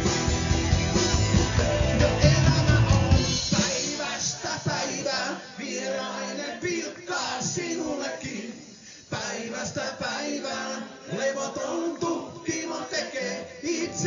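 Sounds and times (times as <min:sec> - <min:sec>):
voices singing together: 0:00.0 - 0:14.0
man singing: 0:01.5 - 0:05.2, 0:11.1 - 0:14.0.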